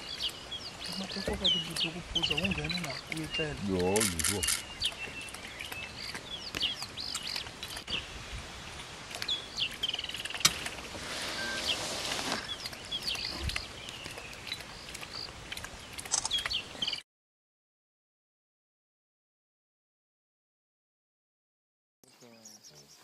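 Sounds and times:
small birds chirping: 0:00.0 - 0:17.0, 0:22.0 - 0:23.0
animal lapping water: 0:09.0 - 0:17.0
hiss: 0:10.9 - 0:12.5.

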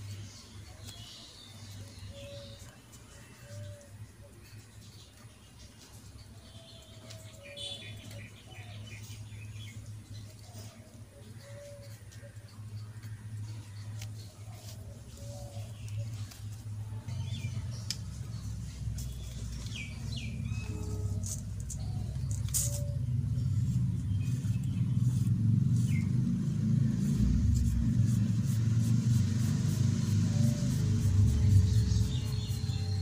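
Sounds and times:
low rumble of outdoor noise: 0:00.0 - 0:33.0
bird chirps: 0:03.4 - 0:10.7, 0:13.4 - 0:26.1, 0:30.3 - 0:33.0.

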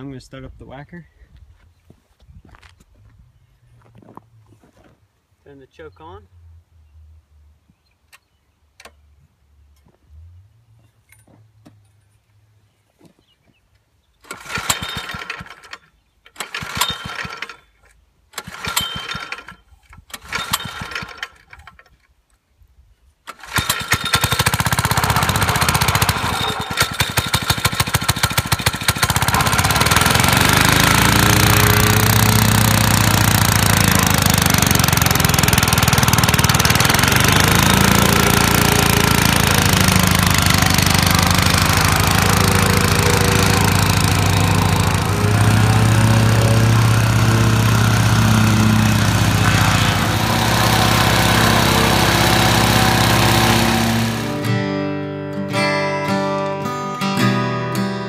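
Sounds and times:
recoil starter pulls: 0:14.2 - 0:22.1, 0:23.3 - 0:54.5
engine running with knocking: 0:23.6 - 0:54.5.

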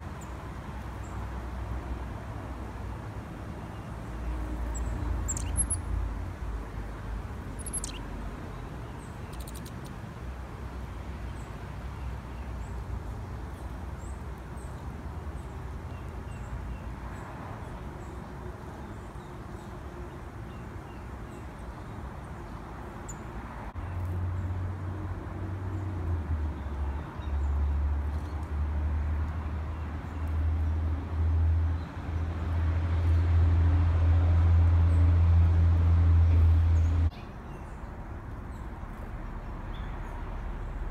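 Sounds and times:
high thin bird chirps: 0:04.7 - 0:05.9, 0:07.5 - 0:08.1, 0:09.3 - 0:09.9.

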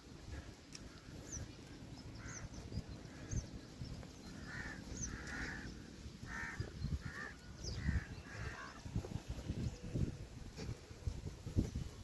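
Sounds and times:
small birds chirping: 0:00.0 - 0:12.0
crows cawing: 0:02.2 - 0:03.4, 0:04.3 - 0:08.9.

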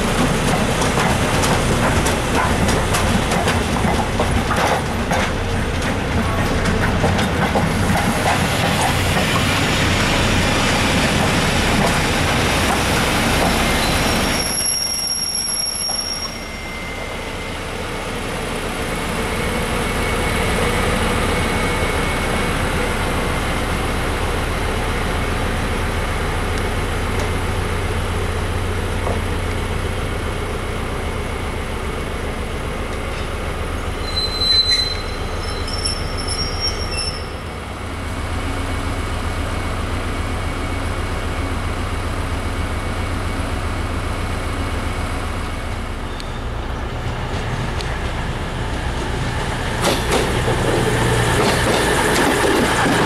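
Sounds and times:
diesel train approaching: 0:00.0 - 0:53.0
high wheel squeal: 0:13.6 - 0:17.9, 0:34.0 - 0:37.6
locomotive diesel engine running: 0:17.0 - 0:34.2.

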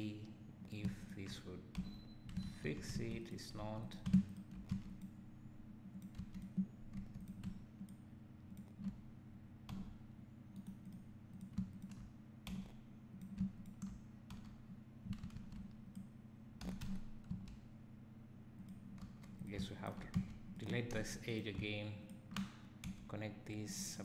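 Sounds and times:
faint steady low hum: 0:00.0 - 0:24.0
keyboard and mouse clicking: 0:06.0 - 0:09.0, 0:09.7 - 0:17.6.

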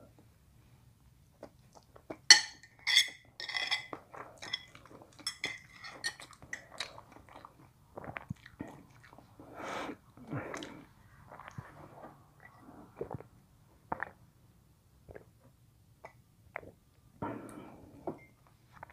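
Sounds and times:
cutlery clinking on ceramic plates: 0:02.3 - 0:06.3.

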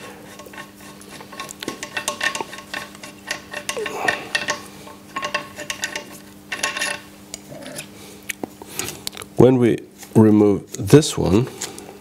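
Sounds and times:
faint steady hum: 0:00.0 - 0:12.0
small metal clicks and scrapes: 0:00.3 - 0:07.9.

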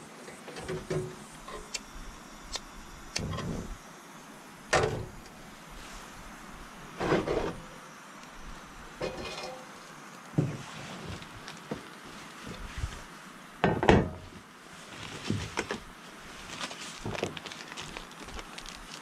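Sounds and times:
scraping sliding clunks: 0:07.0 - 0:07.7.

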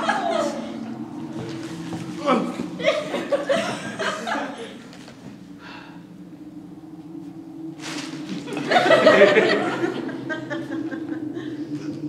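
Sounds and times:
audience laughing: 0:00.0 - 0:01.1, 0:02.2 - 0:05.1, 0:08.4 - 0:12.0
steady low hum: 0:00.0 - 0:12.0.

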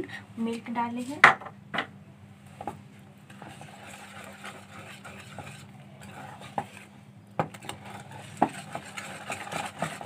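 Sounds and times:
whisk swishing batter: 0:03.2 - 0:10.0
whisk clicking on bowl: 0:03.3 - 0:06.8, 0:07.4 - 0:10.0.

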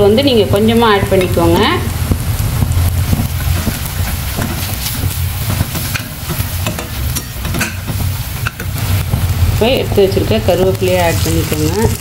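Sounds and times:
low hum: 0:00.0 - 0:11.7
onions sizzling in oil: 0:00.0 - 0:12.0
metal spatula scraping a pan: 0:03.1 - 0:09.1.

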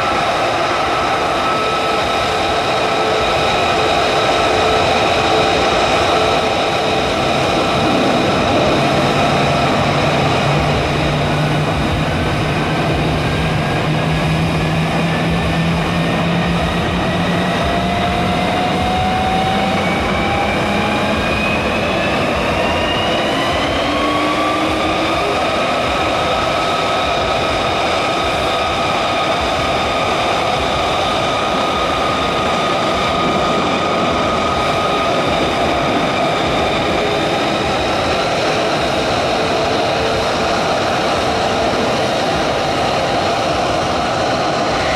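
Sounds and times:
jet engine roar with whine: 0:00.0 - 0:44.9.

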